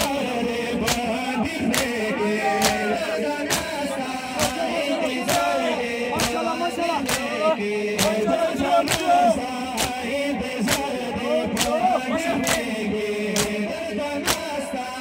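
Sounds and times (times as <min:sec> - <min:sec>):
men chanting together: 0:00.0 - 0:15.0
chest-beating slaps: 0:00.8 - 0:02.0, 0:02.6 - 0:02.9, 0:03.5 - 0:03.8, 0:04.4 - 0:04.7, 0:06.2 - 0:07.3, 0:08.0 - 0:08.2, 0:08.8 - 0:09.1, 0:09.7 - 0:10.0, 0:10.7 - 0:10.9, 0:11.5 - 0:11.8, 0:12.4 - 0:12.7, 0:13.3 - 0:13.6, 0:14.2 - 0:14.5.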